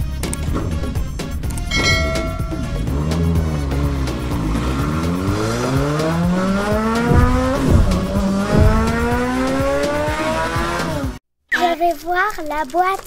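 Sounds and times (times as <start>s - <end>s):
engine accelerating: 0.1s - 11.2s
knocks: 7.0s - 9.3s.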